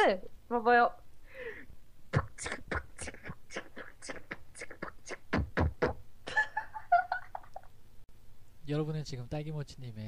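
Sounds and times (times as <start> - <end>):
beatboxing: 2.1 - 6.0.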